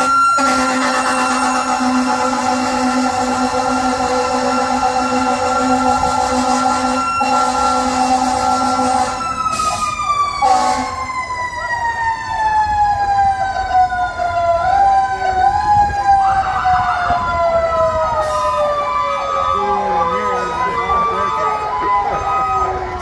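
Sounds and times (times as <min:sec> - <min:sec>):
horn blasts: 0:00.0 - 0:09.3, 0:10.4 - 0:11.0
fire truck siren winding down: 0:00.0 - 0:23.0.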